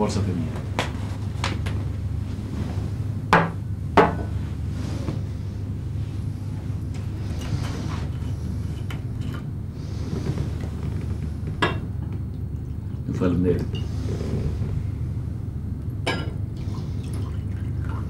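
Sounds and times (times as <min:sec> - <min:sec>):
steady low hum: 0:00.0 - 0:18.0.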